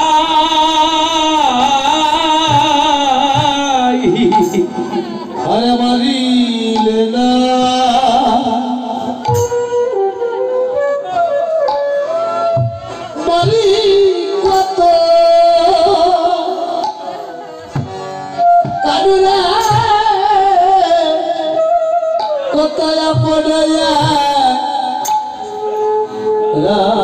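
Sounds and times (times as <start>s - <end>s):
hand drum strokes: 2.3s - 5.8s.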